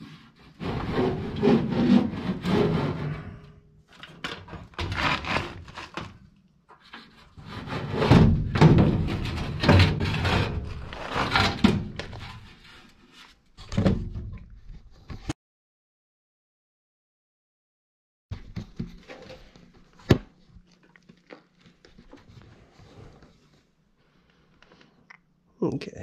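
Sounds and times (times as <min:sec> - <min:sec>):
thunks and knocks: 0:08.0 - 0:10.5.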